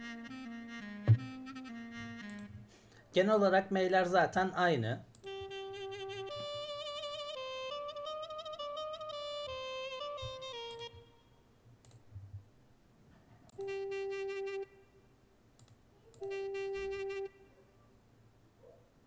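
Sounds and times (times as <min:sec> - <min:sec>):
double-reed pipe held notes: 0:00.0 - 0:02.7, 0:05.3 - 0:11.3
double-reed pipe melody: 0:00.0 - 0:02.7, 0:05.2 - 0:11.3, 0:13.6 - 0:14.8, 0:16.2 - 0:17.4
soft clicks: 0:11.8 - 0:12.1, 0:15.6 - 0:16.3.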